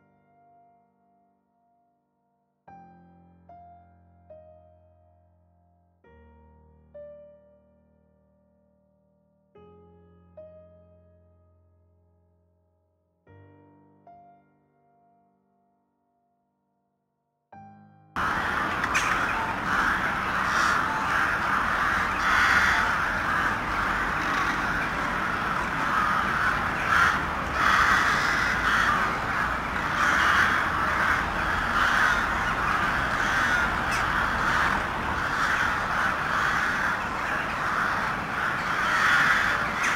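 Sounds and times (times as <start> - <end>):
crows cawing: 18.2 - 39.9.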